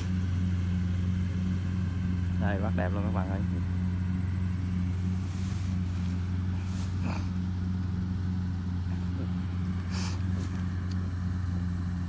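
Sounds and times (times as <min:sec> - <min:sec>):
combine harvester engine humming: 0:00.0 - 0:12.0
short rustles: 0:04.9 - 0:07.4.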